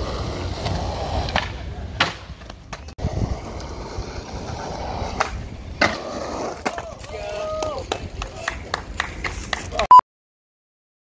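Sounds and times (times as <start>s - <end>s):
skateboard wheels rolling: 0.0s - 9.8s
skateboard clacking on ground: 0.5s - 3.8s, 4.6s - 9.9s.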